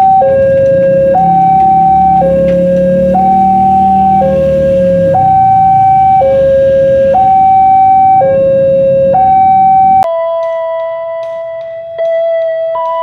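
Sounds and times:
level crossing two-tone alarm: 0.0 - 13.0
music with held notes: 10.1 - 13.0.

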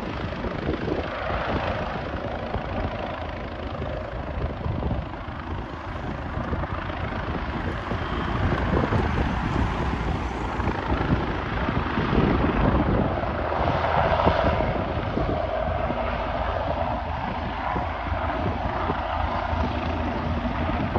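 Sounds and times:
helicopter rotor chop: 0.0 - 20.9
turbine whine: 0.0 - 20.9
wind on microphone: 0.0 - 20.9.

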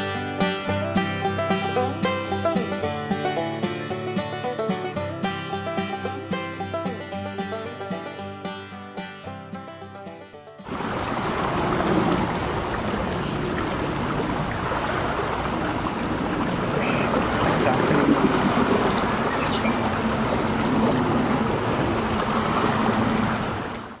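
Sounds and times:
high-pitched hiss: 10.7 - 23.9
water lapping on rocky shore: 10.7 - 24.0
wind buffeting microphone: 10.7 - 24.0.

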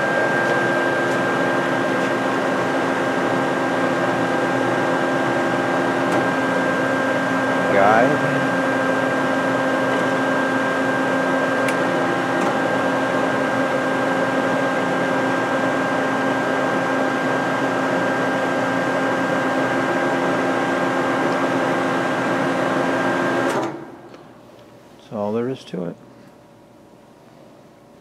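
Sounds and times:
band saw running: 0.0 - 13.8.

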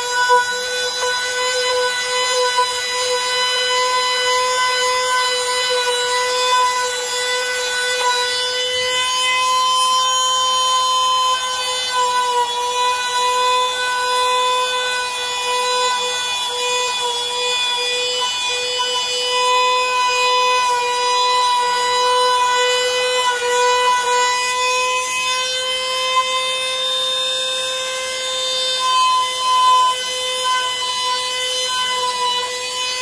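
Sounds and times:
power tool motor whining: 0.0 - 33.0.

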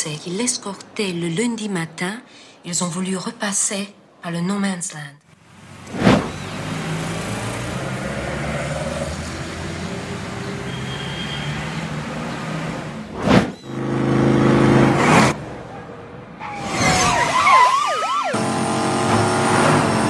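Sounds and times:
traffic over loudspeakers: 5.4 - 20.0
engine drone: 6.4 - 15.4, 18.4 - 20.0.

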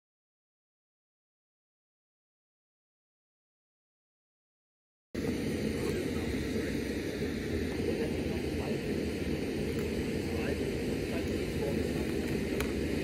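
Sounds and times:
low outdoor rumble: 5.2 - 13.0.

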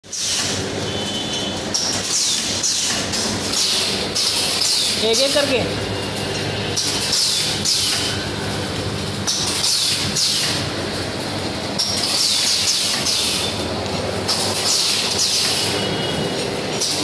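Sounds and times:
machine motor hum: 0.1 - 17.0
pneumatic hiss: 9.5 - 10.6, 12.0 - 13.6.

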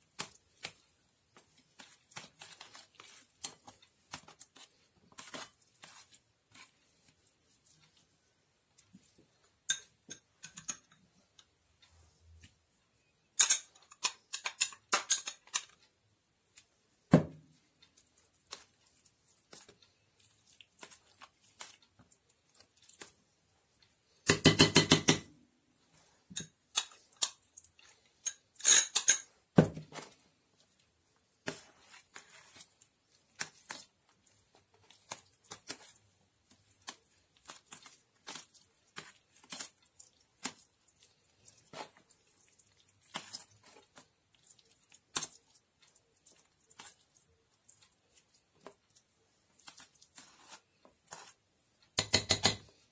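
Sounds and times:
spoon scraping and clicking on metal: 9.6 - 11.5, 13.4 - 15.9, 26.3 - 29.3.

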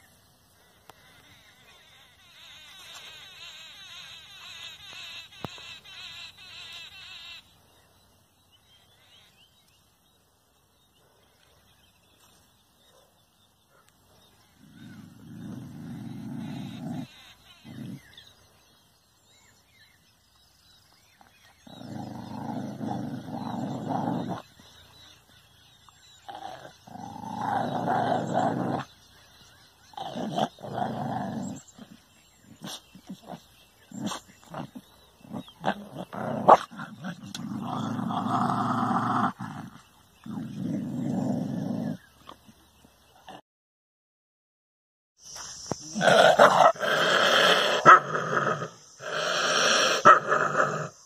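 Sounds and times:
dog growling: 14.5 - 18.1, 21.5 - 24.7, 26.2 - 29.0, 29.8 - 42.5, 45.8 - 51.0.

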